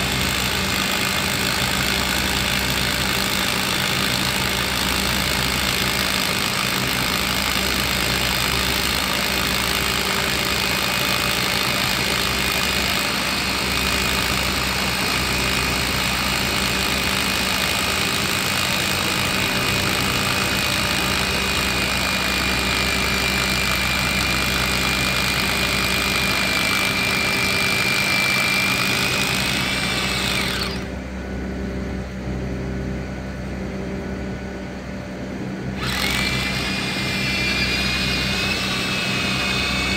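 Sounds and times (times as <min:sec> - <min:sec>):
machine high whine: 0:00.0 - 0:39.9
engine hum: 0:18.2 - 0:39.9.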